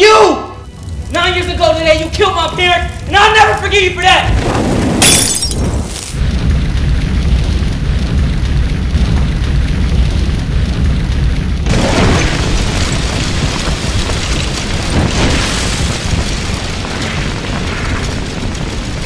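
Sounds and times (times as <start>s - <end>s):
deep rumble: 0.6s - 19.0s
explosion blast: 4.3s - 19.0s.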